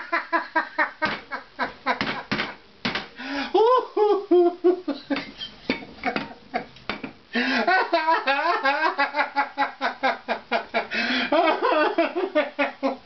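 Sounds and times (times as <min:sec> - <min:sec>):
man laughing hard: 0:00.0 - 0:02.3, 0:03.2 - 0:06.7, 0:07.4 - 0:13.0.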